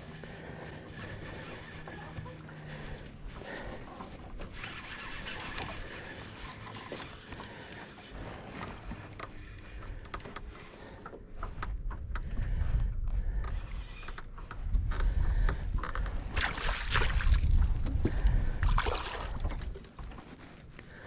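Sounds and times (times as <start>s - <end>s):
wind rumble on microphone: 11.3s - 20.8s
water noise: 16.3s - 20.4s.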